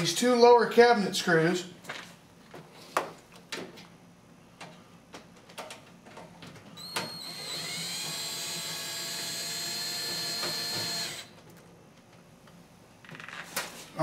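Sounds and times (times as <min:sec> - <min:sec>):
power driver motor whine: 0:06.8 - 0:11.4.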